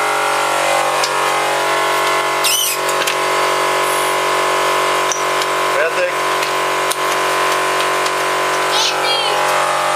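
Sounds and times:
machine humming: 0.0 - 9.9
short high-pitched squeak: 2.4 - 2.8.

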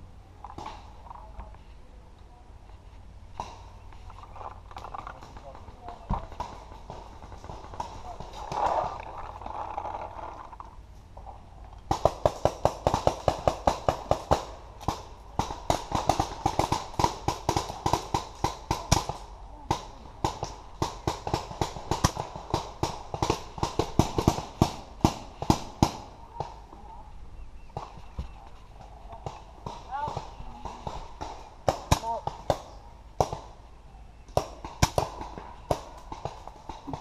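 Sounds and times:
paintball markers firing: 11.9 - 26.6.

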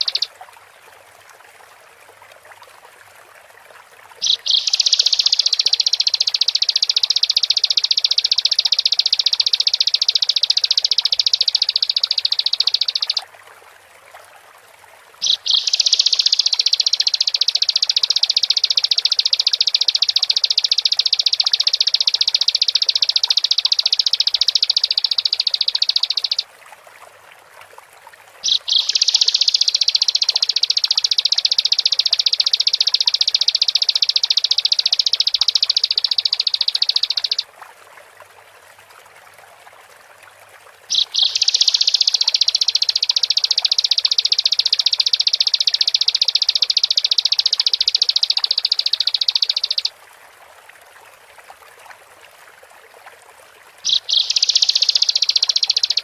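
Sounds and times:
bird trilling: 0.0 - 0.3, 4.2 - 13.2, 15.2 - 26.4, 28.4 - 37.4, 40.9 - 49.9, 53.8 - 56.0
sharp bird notes: 0.0 - 0.3, 4.2 - 13.2, 15.2 - 26.4, 28.4 - 37.4, 40.9 - 49.9, 53.9 - 56.0.

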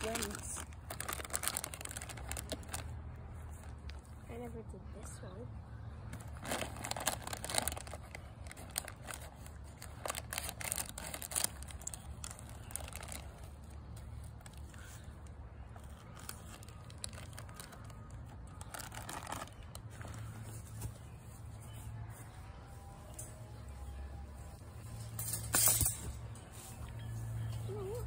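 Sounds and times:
scissors cutting plastic bag: 0.0 - 2.9, 6.3 - 13.5, 15.9 - 19.8
plastic bag crackling: 0.0 - 4.2, 6.1 - 20.3.

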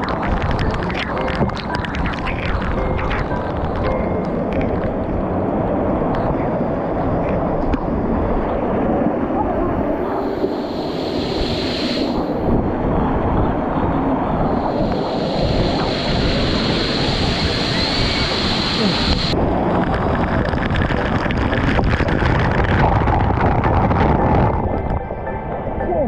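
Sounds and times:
waterfall pouring and splashing: 0.0 - 5.0, 14.5 - 19.4.

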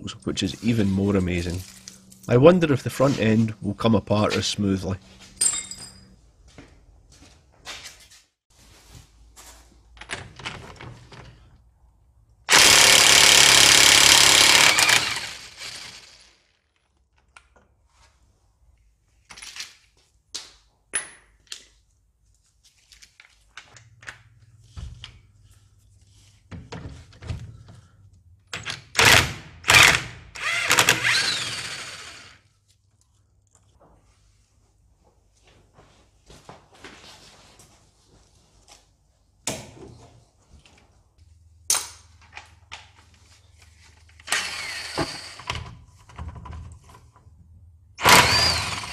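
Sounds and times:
hand tools clinking and knocking: 5.2 - 6.2.

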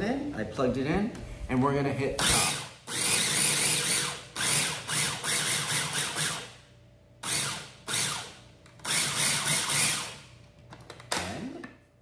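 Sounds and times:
food processor whirring and chopping: 2.2 - 6.4, 7.2 - 10.2.

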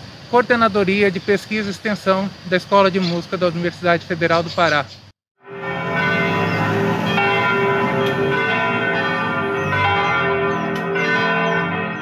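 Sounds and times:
church bells ringing: 5.4 - 12.0.

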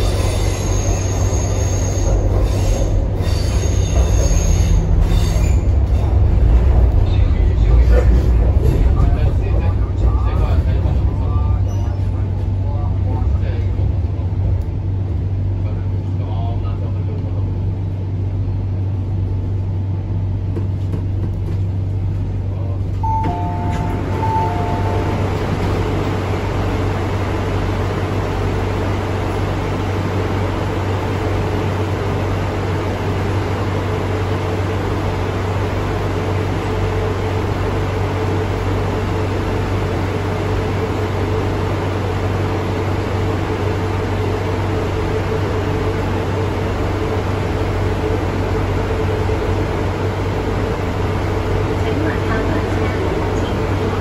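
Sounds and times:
train low hum: 0.0 - 54.0
two-note door chime: 23.0 - 25.2.

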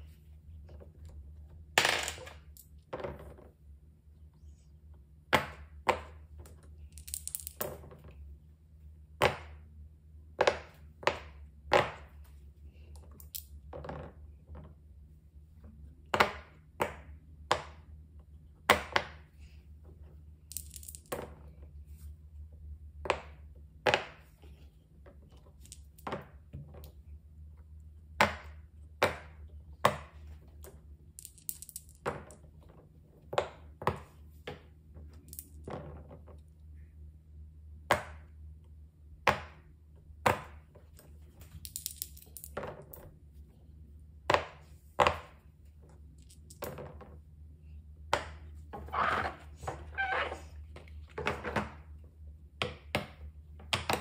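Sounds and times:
low steady hum: 0.0 - 54.0
plastic dice rattling and tumbling: 6.9 - 8.0, 20.4 - 21.4, 31.2 - 32.5, 41.6 - 43.0.

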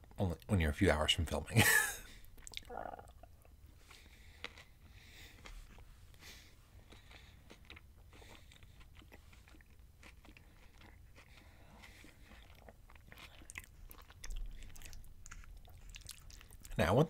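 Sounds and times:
chewing food: 2.1 - 16.8
wet mouth clicks: 2.4 - 3.2.

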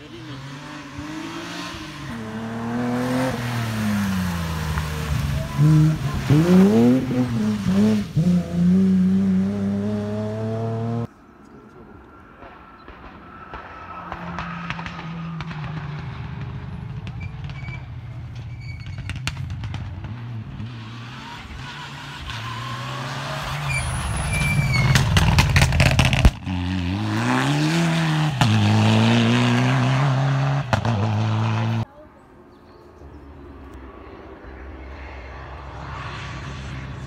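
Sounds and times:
close engine revving: 0.0 - 11.1, 20.0 - 31.9
rally car engines at full throttle: 0.0 - 31.9, 33.0 - 37.0
sharp cracks: 12.3 - 17.6.

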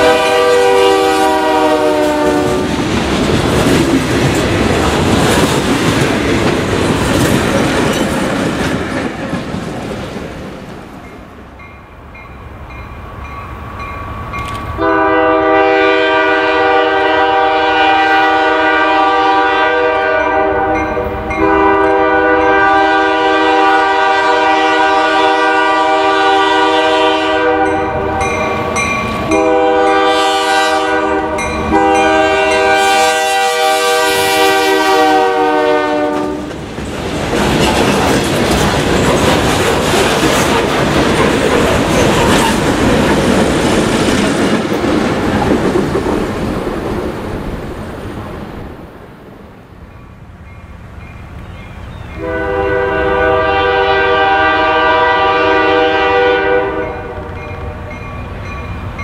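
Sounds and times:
locomotive air horn blasts: 0.0 - 2.8, 14.8 - 28.3, 29.3 - 36.5, 52.2 - 58.0
train engine and wheel noise: 0.0 - 59.0.

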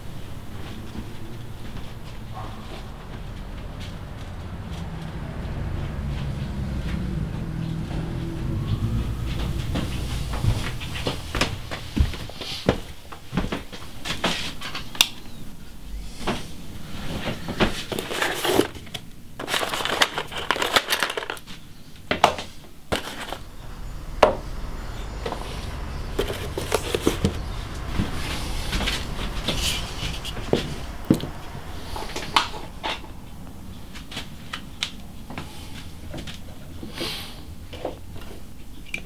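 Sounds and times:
hand rummaging in cardboard box: 17.7 - 21.5, 22.9 - 23.5, 26.2 - 27.5.

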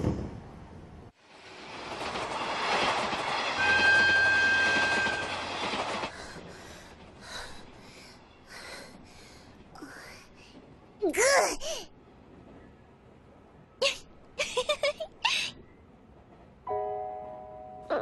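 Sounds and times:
passenger train rushing: 0.0 - 11.0.

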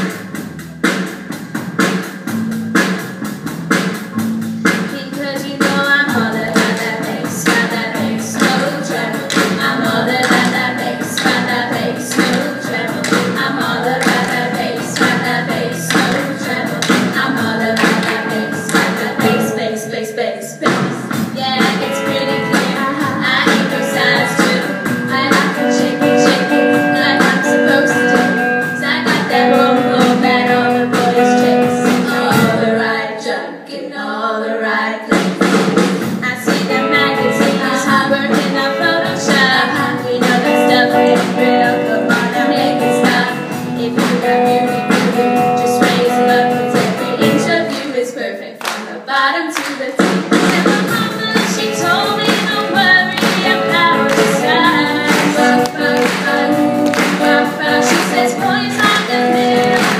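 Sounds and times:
drums: 0.0 - 33.8, 34.8 - 59.9
double bass: 2.3 - 4.8
electric guitar: 4.0 - 19.8, 21.1 - 32.8, 36.1 - 47.8, 50.4 - 59.9
girls singing: 4.7 - 35.4, 36.2 - 59.9
handclaps: 9.3 - 9.6, 10.2 - 10.6, 12.1 - 13.3, 14.0 - 15.2, 17.8 - 19.0, 48.6 - 48.9, 49.6 - 51.6, 53.2 - 59.9.

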